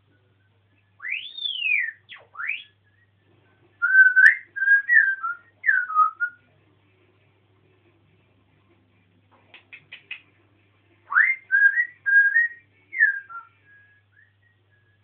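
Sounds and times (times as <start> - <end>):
parrot whistling: 1.0 - 2.8, 3.8 - 6.4, 11.1 - 14.3.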